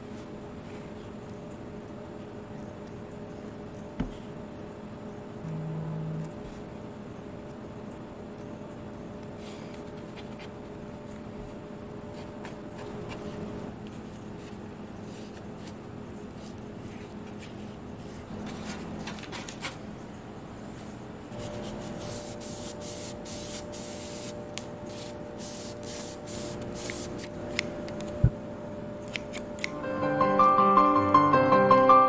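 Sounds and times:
low steady hum: 0.0s - 31.3s
scissors snipping: 29.0s - 29.8s.

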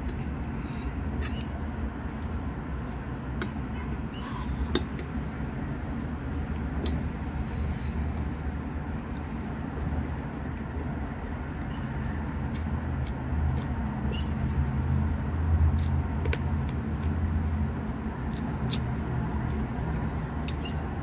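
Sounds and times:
low machine hum: 0.0s - 21.0s
wet chewing and lip smacks: 9.0s - 17.6s, 18.2s - 20.9s.

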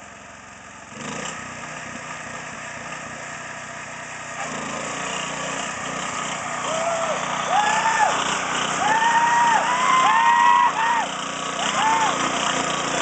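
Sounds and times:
small engine running: 0.0s - 13.0s.

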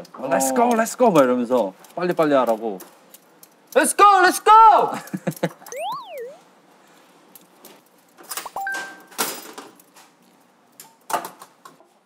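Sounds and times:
cartoon whistle effect: 5.7s - 6.4s
electronic ding: 5.7s - 6.4s.

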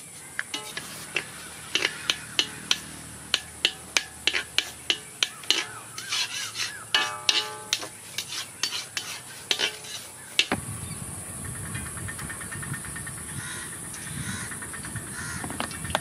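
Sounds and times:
stone roller grinding on stone slab: 0.6s - 10.6s.

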